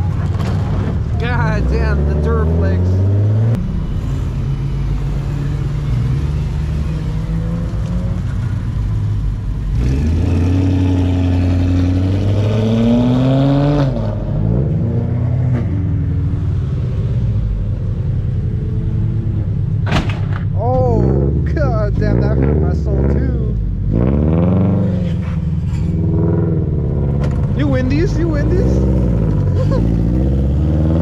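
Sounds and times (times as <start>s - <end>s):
car engine revving: 0.0s - 31.0s
car engines running: 0.0s - 31.0s.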